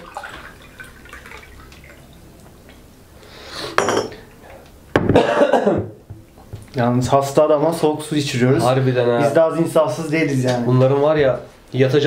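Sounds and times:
water poured into a glass: 0.0s - 2.4s.

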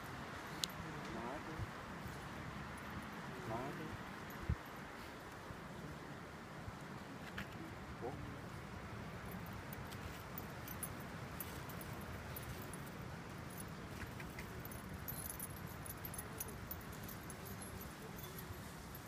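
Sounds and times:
low background noise: 0.0s - 19.0s
faint metallic jingling: 9.1s - 19.0s.

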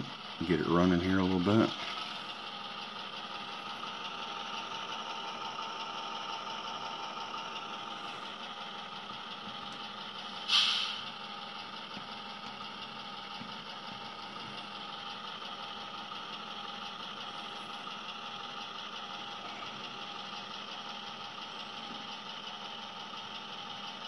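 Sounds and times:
model diesel locomotive engine: 0.0s - 24.0s
short burst of hiss: 10.4s - 11.1s.

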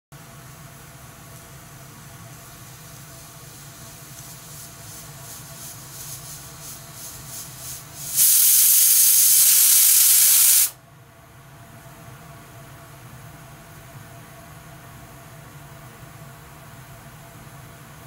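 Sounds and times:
loud steady steam hiss: 1.2s - 10.8s.

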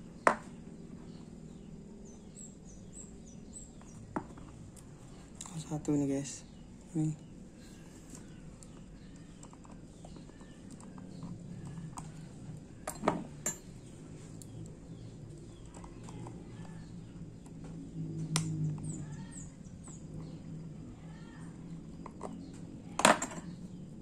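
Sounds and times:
faint birds chirping: 0.0s - 24.0s.

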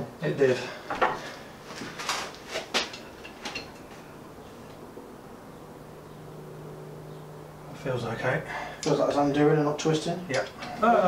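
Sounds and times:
faint low hum: 2.9s - 11.0s.

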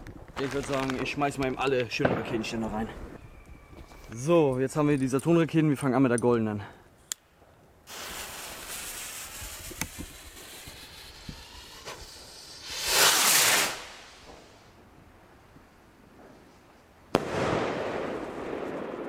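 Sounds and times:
loud hissing rush: 7.9s - 14.7s
firework rocket whoosh: 7.9s - 14.8s.

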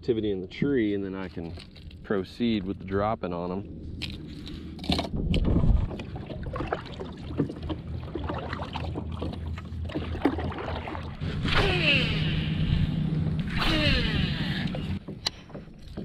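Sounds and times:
paddle dipping and splashing: 4.4s - 16.0s
small knocks: 15.0s - 16.0s.

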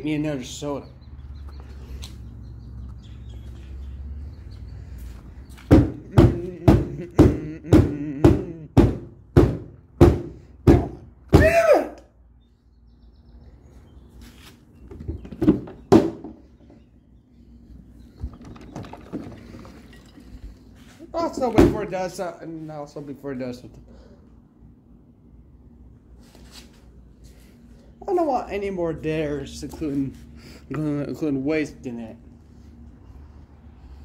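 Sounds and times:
loud dull thumps: 5.7s - 11.6s, 14.9s - 16.8s, 21.4s - 22.0s.

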